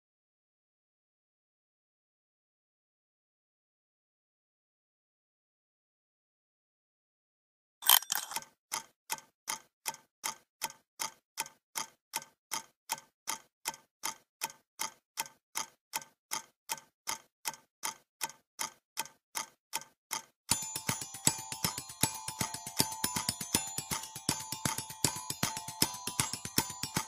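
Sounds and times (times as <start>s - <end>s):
clock ticking: 7.8s - 27.0s.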